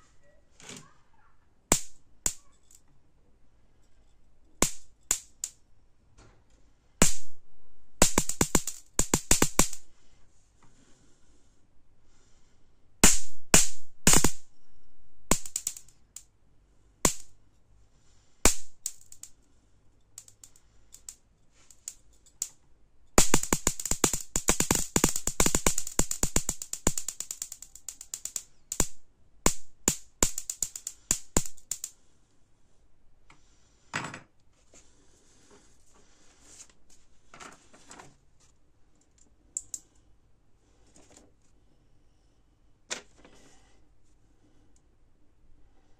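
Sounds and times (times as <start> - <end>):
high-voltage sparks snapping: 1.7 - 2.5, 4.6 - 5.6, 7.0 - 7.4, 8.0 - 9.9, 13.0 - 14.5, 15.3 - 16.2, 17.0 - 17.3, 18.5 - 19.3, 23.2 - 31.9.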